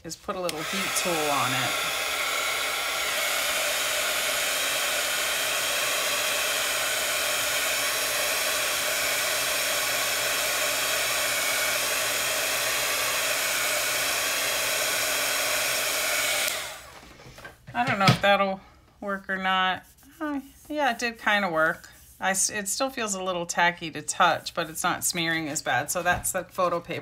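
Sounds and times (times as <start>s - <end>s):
heat tool blowing air: 0.0s - 17.0s.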